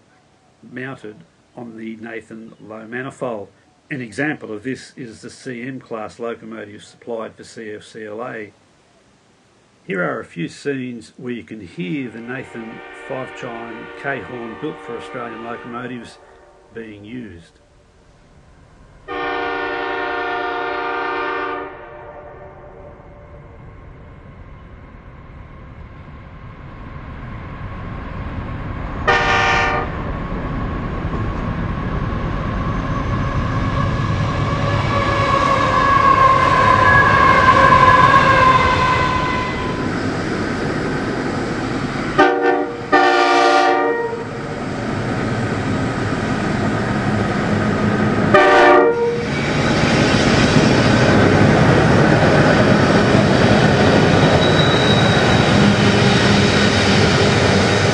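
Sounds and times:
train running noise: 11.5 - 57.9
locomotive horn blasts: 12.0 - 16.8, 19.1 - 22.8, 29.0 - 30.0, 34.6 - 39.8, 42.2 - 44.3, 48.3 - 49.3.

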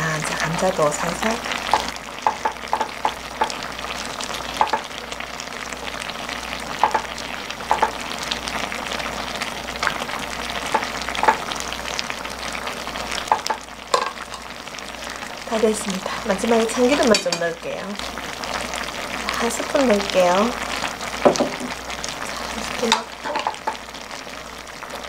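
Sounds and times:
food sizzling and bubbling in pan: 0.0 - 25.0
metal tongs clicking on pan: 17.1 - 17.5.

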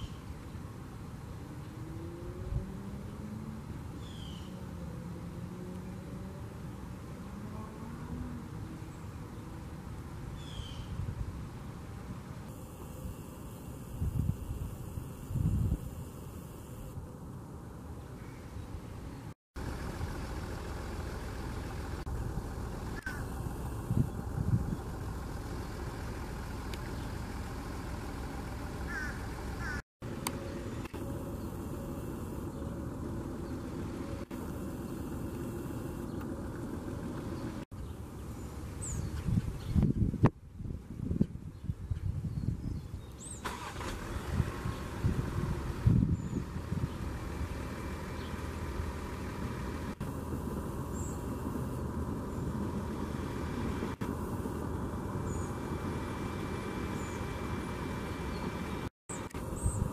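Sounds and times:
low mechanical hum: 11.9 - 59.9
faint steady tones: 12.4 - 17.8, 19.6 - 38.6
low background rumble: 18.7 - 40.2, 44.0 - 59.9.

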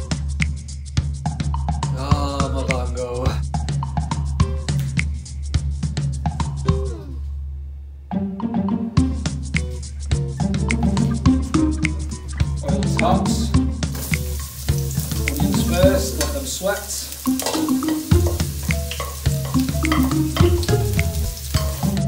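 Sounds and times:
onion sizzling in hot oil: 13.9 - 22.0.

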